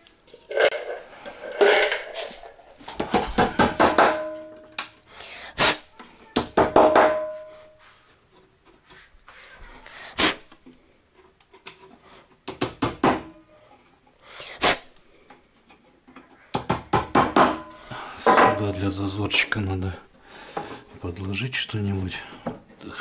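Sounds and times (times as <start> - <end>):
wooden parts knocking and clattering: 2.8 - 5.0, 15.2 - 19.6.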